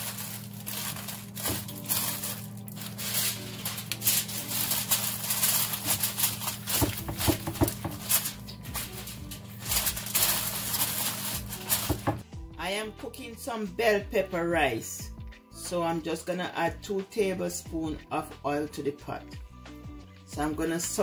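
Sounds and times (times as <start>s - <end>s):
paper and foil crinkling: 0.0s - 12.2s.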